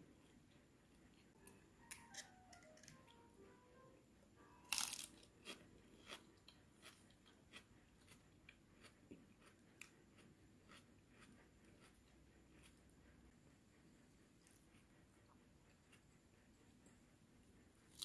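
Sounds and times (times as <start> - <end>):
crisp crunch: 4.7 - 7.0.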